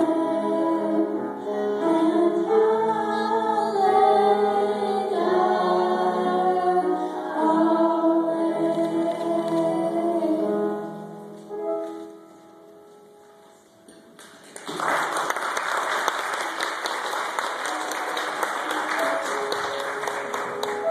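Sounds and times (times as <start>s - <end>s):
children's choir singing: 0.0s - 11.0s
audience applause: 14.2s - 20.9s.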